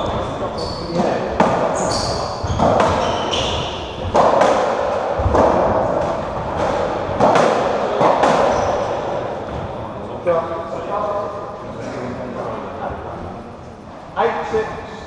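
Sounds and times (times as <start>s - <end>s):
shoes squeaking on wooden floor: 0.0s - 4.3s, 8.3s - 9.6s
ball hits echoing in court: 0.9s - 9.7s.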